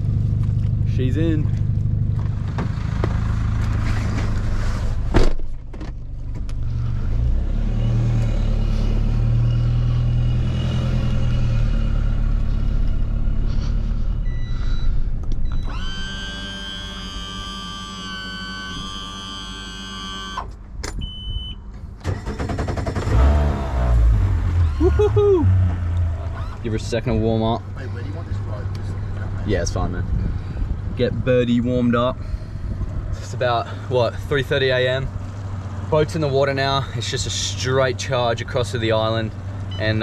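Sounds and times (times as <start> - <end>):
car engine and road noise: 0.0 - 40.0
steady held tones: 14.2 - 20.4.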